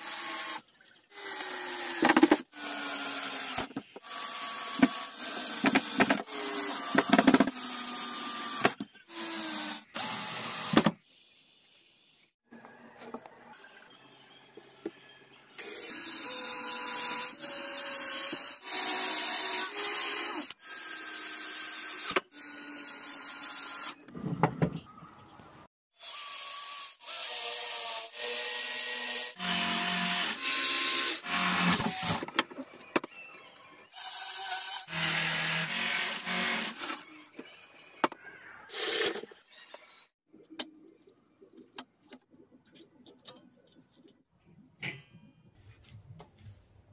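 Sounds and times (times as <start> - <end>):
electric drill boring into wood: 0.0 - 10.9, 15.6 - 24.0, 26.0 - 32.2, 34.0 - 37.0.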